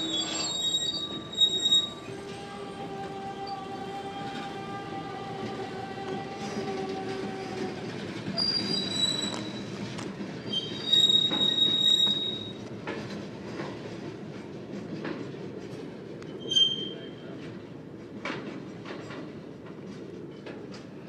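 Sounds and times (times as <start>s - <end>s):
high-pitched wheel squeals: 0.0s - 2.5s, 8.4s - 9.8s, 10.5s - 12.6s, 16.4s - 17.1s
train wheels rumbling on rails: 0.0s - 21.0s.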